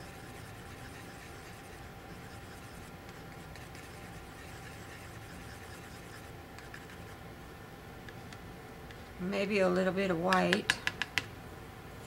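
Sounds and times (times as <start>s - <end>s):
palette knife scraping paint: 0.0s - 7.2s.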